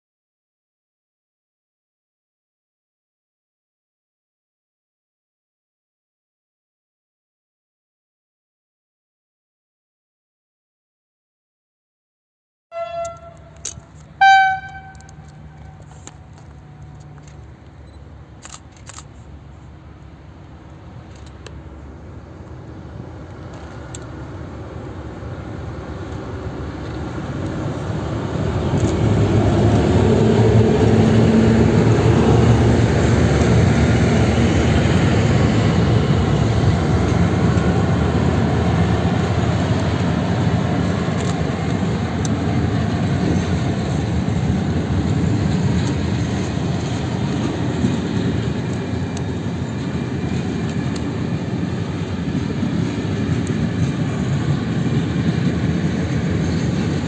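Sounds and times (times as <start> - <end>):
short ringing tone: 12.7 - 13.6, 14.2 - 15.8
diesel locomotive engine: 12.7 - 57.0
train wheels rolling: 12.8 - 57.0.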